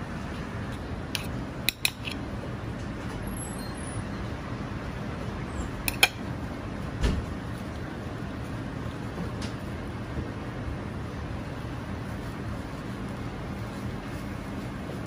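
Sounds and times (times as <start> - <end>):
steady background hum: 0.0 - 15.0
metal spatula clicking on plate: 1.2 - 2.2, 5.9 - 6.2.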